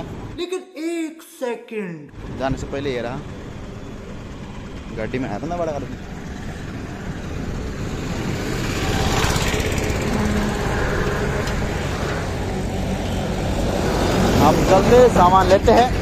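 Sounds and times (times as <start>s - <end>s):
road noise: 0.0s - 0.4s, 2.1s - 16.0s
pickup truck engine driving past: 5.8s - 16.0s.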